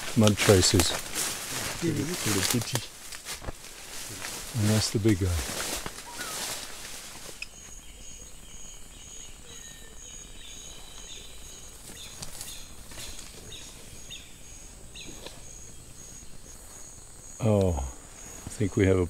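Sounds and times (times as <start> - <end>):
insects chirring: 0.0 - 19.0
bird chirps: 6.0 - 19.0.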